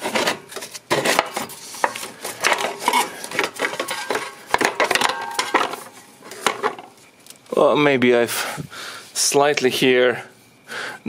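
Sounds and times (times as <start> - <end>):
metal heat shield scraping and clanking: 0.0 - 6.8.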